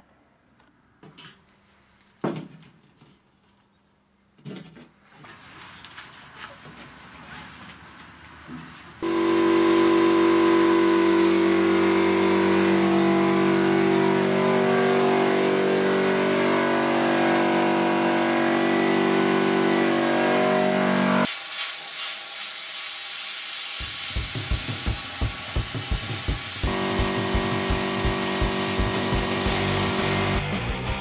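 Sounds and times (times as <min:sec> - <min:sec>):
air compressor running: 0:09.0 - 0:21.6, 0:22.7 - 0:30.4
sandblasting gun hissing: 0:21.2 - 0:30.4.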